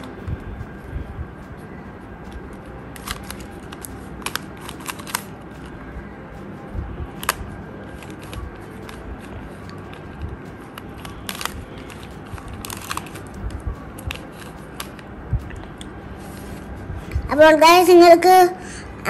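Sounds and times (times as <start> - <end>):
plastic puzzle clicking and rattling: 2.9 - 5.7, 11.0 - 13.4.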